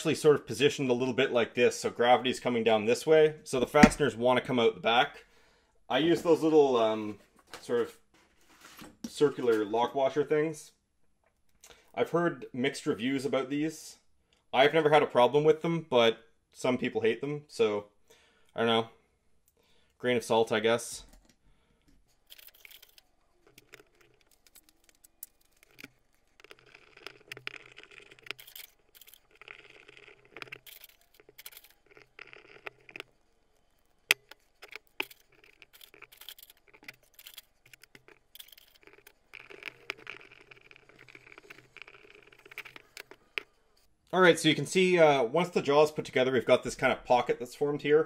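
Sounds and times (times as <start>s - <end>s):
metal parts clicking: 22.1s - 43.9s.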